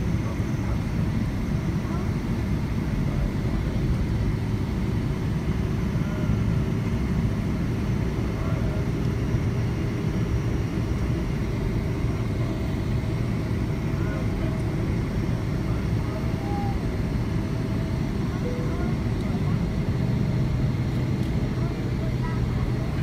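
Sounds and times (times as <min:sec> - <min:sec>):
airliner cabin low rumble: 0:00.0 - 0:23.0.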